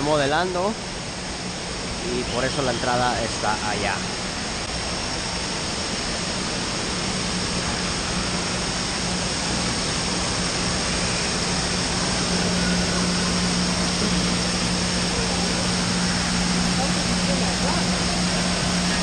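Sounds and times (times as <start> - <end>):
low hum: 0.0 - 19.0
rushing water: 0.0 - 19.0.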